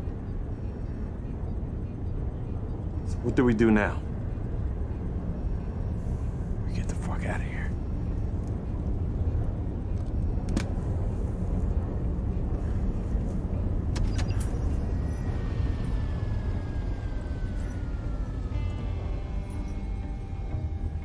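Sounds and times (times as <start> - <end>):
low interior rumble: 0.0 - 21.0
faint descending tone: 14.2 - 21.0.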